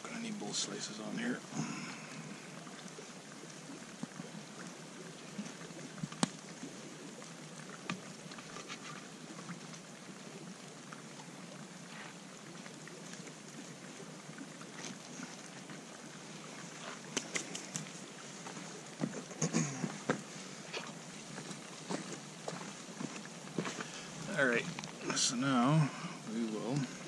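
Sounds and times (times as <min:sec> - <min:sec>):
outdoor background hiss: 0:00.0 - 0:27.0.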